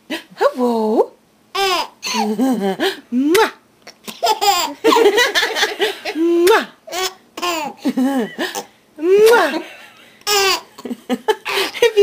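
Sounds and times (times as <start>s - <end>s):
baby giggling: 1.6s - 2.7s, 3.9s - 9.6s, 10.2s - 12.0s.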